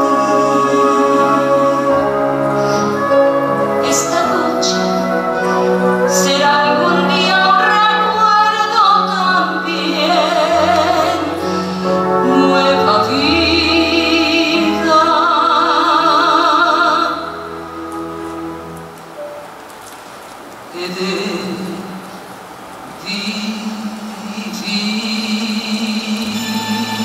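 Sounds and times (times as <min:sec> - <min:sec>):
instrumental accompaniment: 0:00.0 - 0:20.5
woman singing a ballad: 0:03.8 - 0:17.5.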